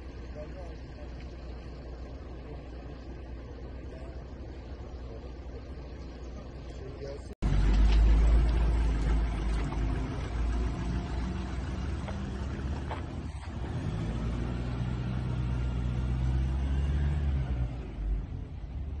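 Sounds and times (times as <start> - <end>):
van engine rumble: 0.0 - 19.0.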